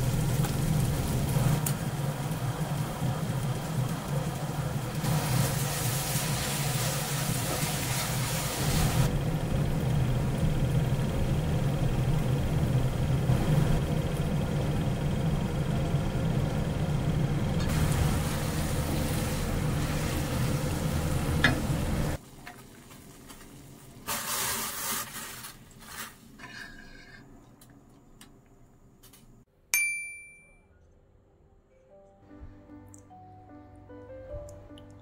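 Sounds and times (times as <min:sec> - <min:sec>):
sauce sizzling in frying pan: 0:00.0 - 0:09.1, 0:17.7 - 0:26.0
noodles into boiling water: 0:22.2 - 0:26.8
ringing clink: 0:29.8 - 0:30.7.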